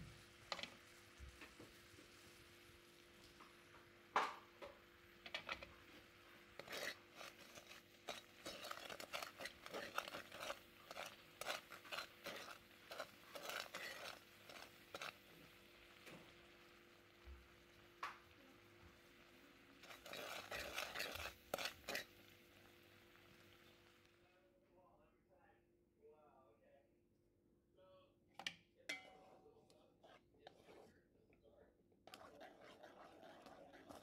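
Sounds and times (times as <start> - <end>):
wooden spatula scraping pan: 5.3 - 16.2, 19.7 - 22.1, 28.9 - 31.0, 32.0 - 34.0.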